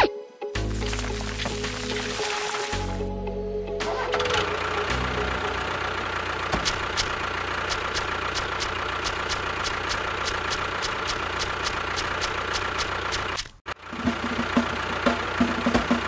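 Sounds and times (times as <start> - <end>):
small motor running: 6.4 - 13.6
regular ticking: 6.6 - 13.6.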